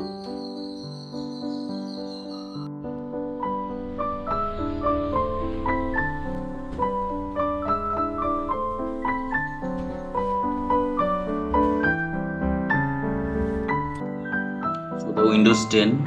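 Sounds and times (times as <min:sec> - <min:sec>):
background piano music: 0:00.0 - 0:16.0.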